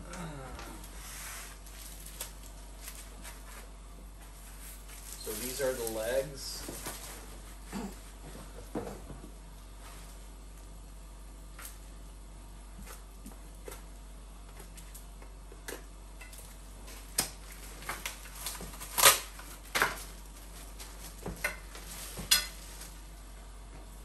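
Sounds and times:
packaging rustling: 0.8 - 3.5, 4.5 - 7.3.

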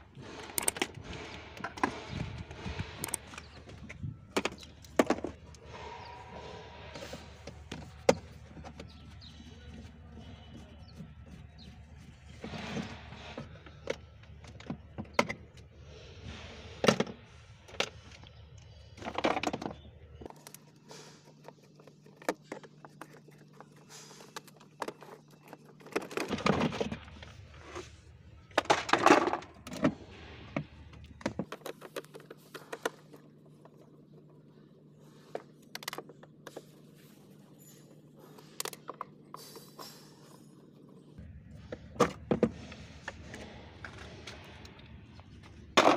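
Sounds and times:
plastic parts scraping: 16.3 - 36.8.

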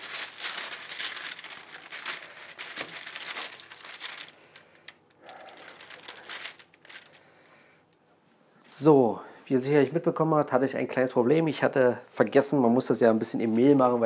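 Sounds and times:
baking paper crinkling: 0.0 - 7.3.

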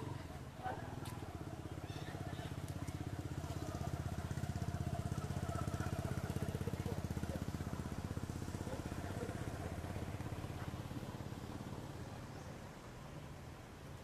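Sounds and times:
small engine running: 0.0 - 13.9.

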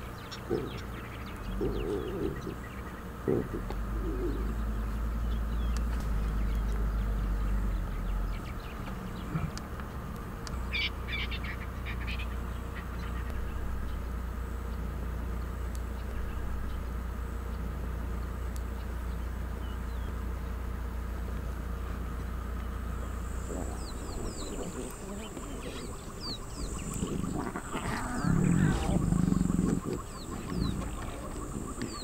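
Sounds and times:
lions calling: 0.0 - 5.0, 9.2 - 9.7, 23.0 - 32.0
low hum: 0.0 - 32.0.

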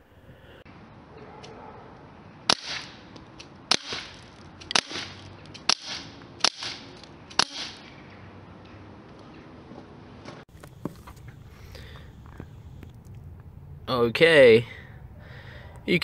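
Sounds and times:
bb pistol shots: 2.5 - 7.9.

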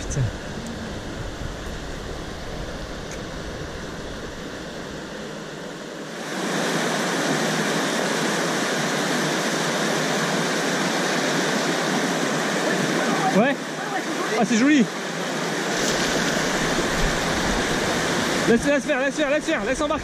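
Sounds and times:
river rapids rushing: 6.2 - 20.0.

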